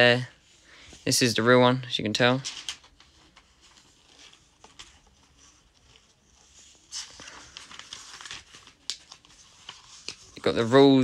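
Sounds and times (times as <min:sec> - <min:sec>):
notebook pages rustling: 0:00.0 - 0:11.0.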